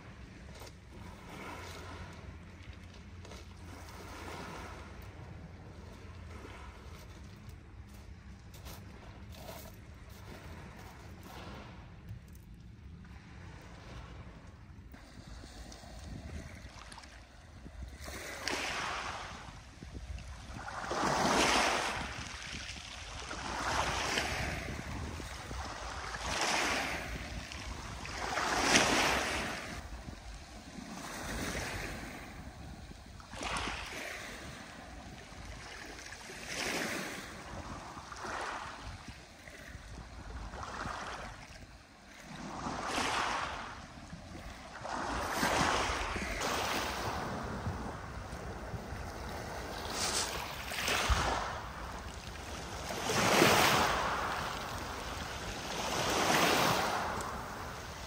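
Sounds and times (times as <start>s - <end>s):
strong gusting wind: 16.0s - 35.7s.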